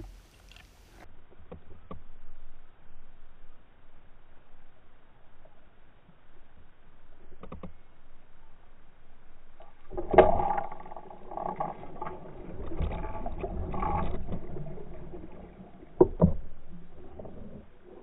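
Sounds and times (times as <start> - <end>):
water splashing and churning: 9.6 - 18.0.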